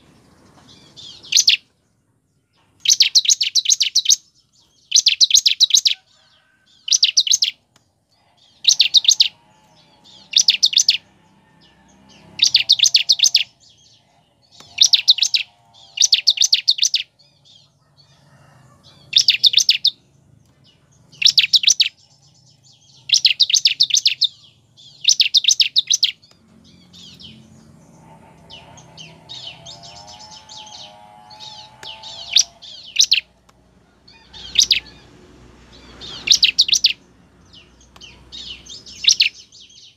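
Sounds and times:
bird trilling call: 0:01.0 - 0:01.6, 0:02.8 - 0:07.6, 0:08.2 - 0:11.1, 0:11.7 - 0:17.7, 0:18.9 - 0:20.0, 0:21.2 - 0:22.0, 0:22.8 - 0:26.2, 0:26.8 - 0:33.4, 0:34.1 - 0:35.1, 0:35.8 - 0:37.1, 0:38.0 - 0:39.8
soft bird chirps: 0:02.5 - 0:33.5, 0:35.7 - 0:39.9.

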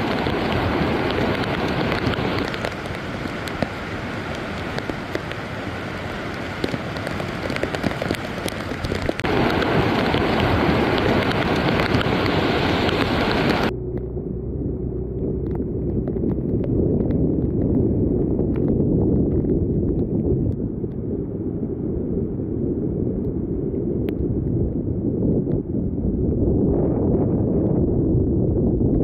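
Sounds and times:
flooded river rushing: 0:00.0 - 0:13.7
heavy rain: 0:00.0 - 0:26.0
muffled floodwater running: 0:00.0 - 0:29.0.

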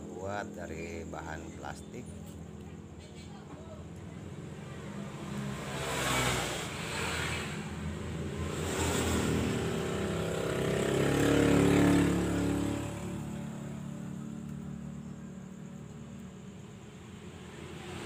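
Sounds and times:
passing vehicle engine: 0:04.1 - 0:18.0.

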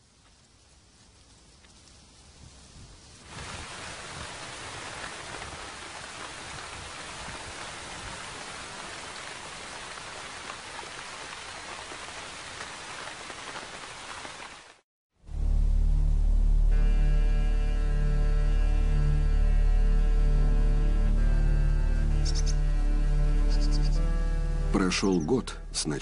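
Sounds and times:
rain falling on trees: 0:00.0 - 0:14.8.

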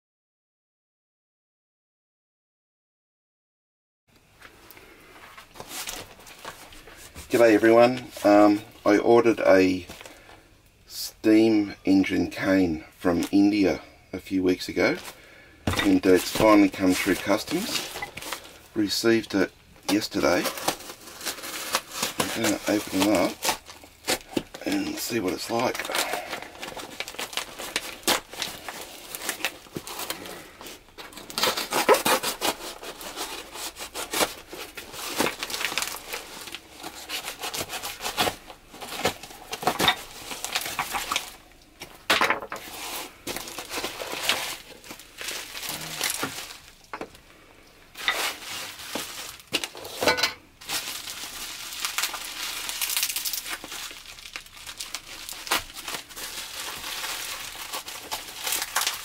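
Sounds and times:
bubble wrap crinkling: 0:04.4 - 0:10.8, 0:14.5 - 0:50.0, 0:50.6 - 0:59.0
knife cutting plastic wrap: 0:15.7 - 0:18.6, 0:19.9 - 0:46.8, 0:48.0 - 0:59.0.

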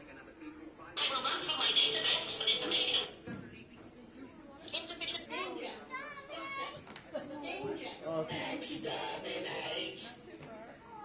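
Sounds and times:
faint music: 0:00.0 - 0:11.0
indistinct talking: 0:01.0 - 0:03.2, 0:04.4 - 0:10.4.

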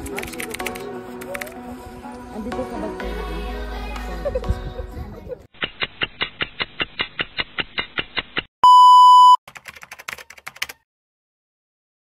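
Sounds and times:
fast run of clicks: 0:05.6 - 0:08.5
electronic beep: 0:08.6 - 0:09.4.

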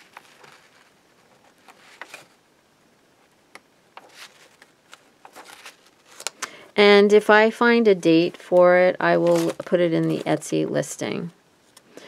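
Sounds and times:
paper pages turning: 0:00.0 - 0:02.4, 0:04.0 - 0:06.5, 0:09.1 - 0:10.5.

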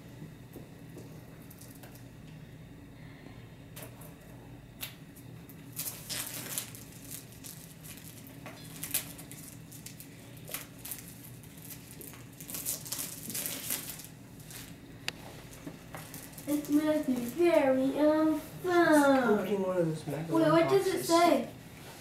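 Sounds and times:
faint room hum: 0:00.0 - 0:22.0
plastic wrapping crinkling and tearing: 0:05.7 - 0:14.8, 0:15.5 - 0:17.6.

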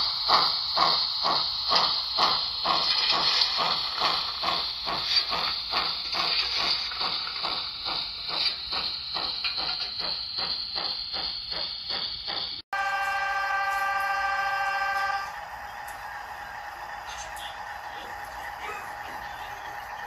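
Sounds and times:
steady steam hiss: 0:00.0 - 0:12.6
model steam locomotive chuffing: 0:00.0 - 0:20.0.

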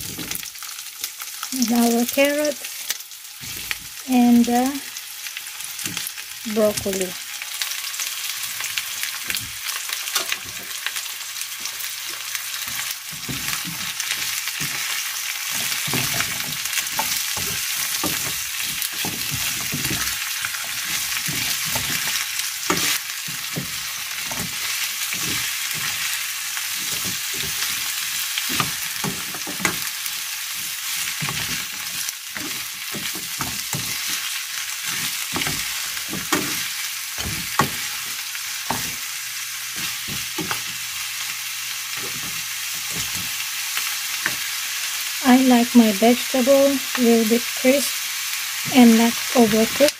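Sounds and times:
vegetables sizzling in a wok: 0:00.0 - 0:49.9
spatula scraping and knocking pan: 0:12.6 - 0:39.1, 0:39.7 - 0:40.9, 0:42.0 - 0:43.4.

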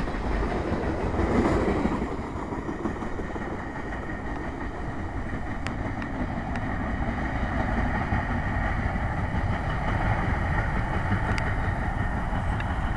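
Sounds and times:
train rumbling away: 0:00.0 - 0:12.9
wind buffeting microphone: 0:00.0 - 0:12.9
faint sharp clicks: 0:05.6 - 0:06.7.

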